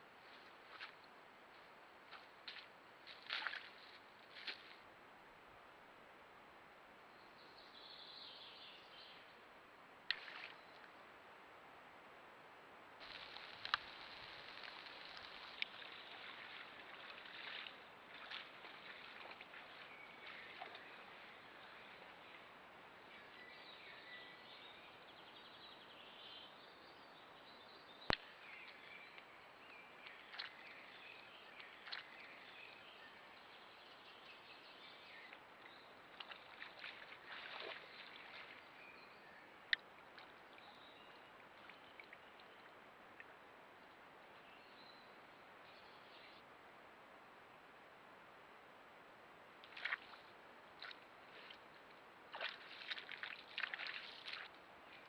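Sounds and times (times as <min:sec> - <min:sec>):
steady low hiss: 0:00.0 - 0:55.0
splashy rustles: 0:02.4 - 0:04.8, 0:13.0 - 0:20.8, 0:36.2 - 0:38.6, 0:52.3 - 0:54.6.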